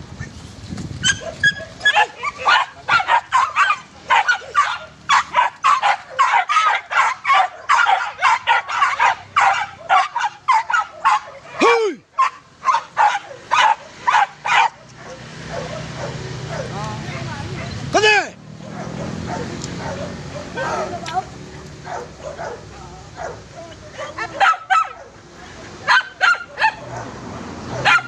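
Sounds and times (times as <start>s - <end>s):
dogs yelping: 1.0s - 17.9s, 18.6s - 21.1s, 21.8s - 28.0s.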